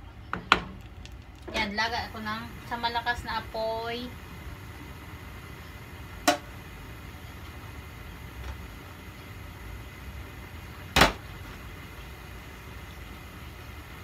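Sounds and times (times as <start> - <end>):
gas burner rumbling: 0.0 - 14.0.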